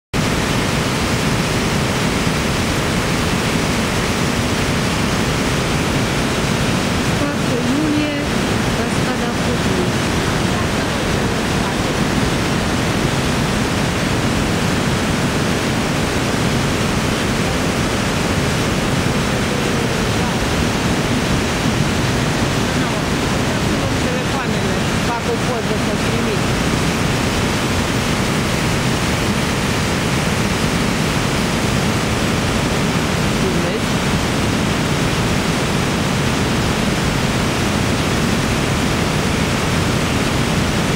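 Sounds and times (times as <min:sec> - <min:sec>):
waterfall rushing: 0:00.2 - 0:40.9.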